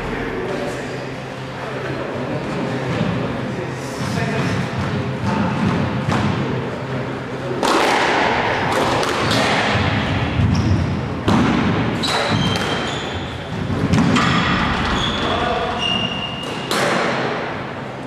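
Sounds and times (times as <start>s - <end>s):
shoes squeaking on court floor: 12.0s - 13.6s, 14.3s - 16.8s.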